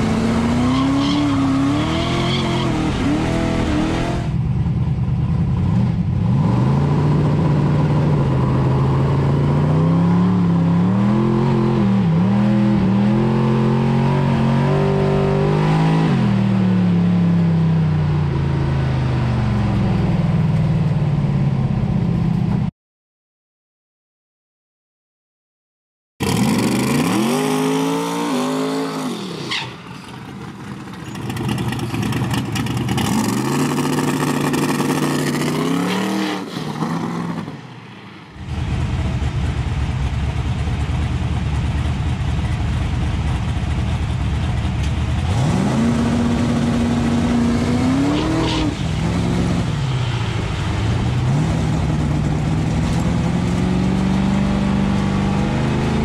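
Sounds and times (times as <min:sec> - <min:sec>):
drag car engine revving: 0:00.0 - 0:04.4, 0:26.2 - 0:37.5, 0:38.4 - 0:56.0.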